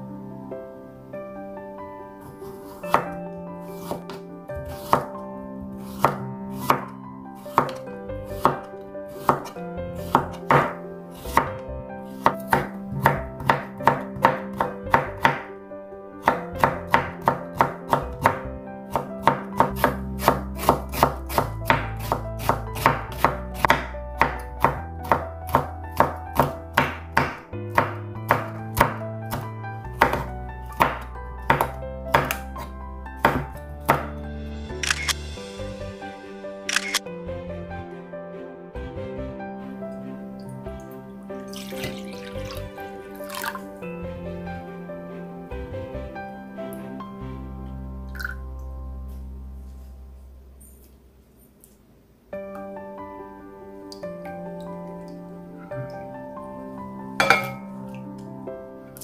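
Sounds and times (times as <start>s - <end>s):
soft background music: 0.0s - 51.4s, 52.3s - 59.0s
knife chopping on cutting board: 3.8s - 5.1s, 5.9s - 6.9s, 7.5s - 7.8s, 8.4s - 11.5s, 12.2s - 15.5s, 16.2s - 32.4s, 33.2s - 34.1s.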